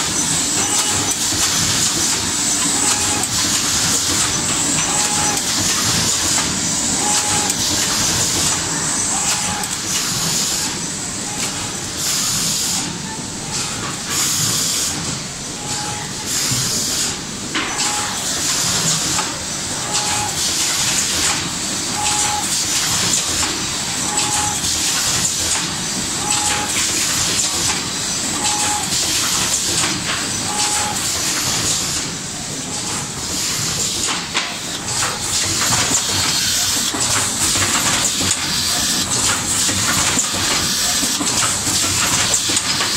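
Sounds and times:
machine running: 0.0s - 42.9s.

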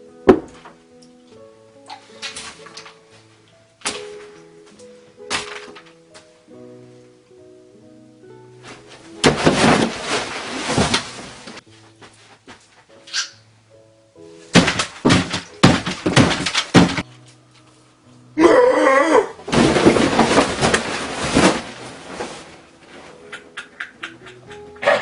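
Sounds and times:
light background music: 0.0s - 25.0s
clattering: 5.3s - 6.0s, 8.7s - 11.6s, 14.5s - 17.1s, 19.4s - 23.3s
table and plates crashing: 5.3s - 6.0s, 9.2s - 11.6s, 14.6s - 17.1s, 19.4s - 22.5s
person yelling: 18.4s - 19.4s.

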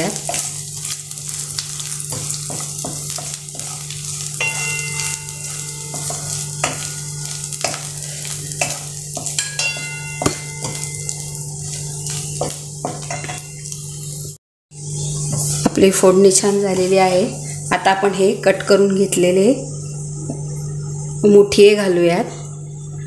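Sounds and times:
food sizzling in hot oil: 0.0s - 20.2s
wooden spatula scraping a pan: 0.1s - 13.4s, 15.2s - 17.9s.

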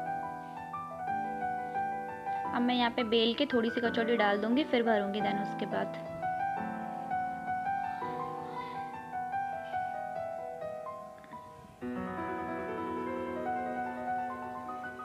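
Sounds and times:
piano music with held chords: 0.0s - 15.0s.

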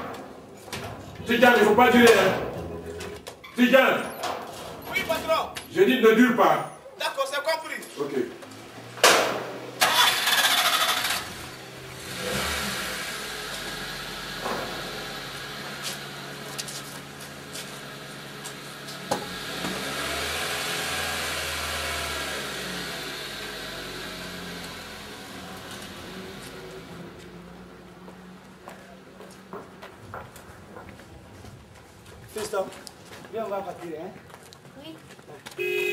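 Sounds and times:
car engine idling: 8.4s - 27.2s
faint engine knocks: 28.0s - 35.6s.

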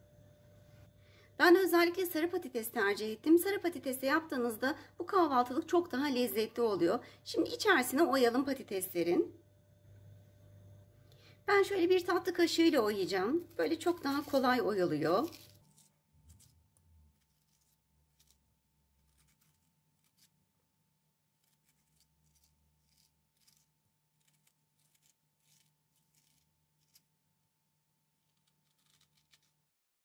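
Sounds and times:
faint steady hum: 0.0s - 15.9s
spoon scraping potato: 11.6s - 20.6s, 21.2s - 27.3s.

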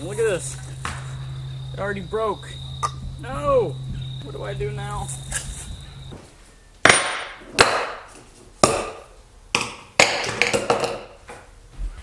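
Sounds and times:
objects knocking on workbench: 9.6s - 11.1s.

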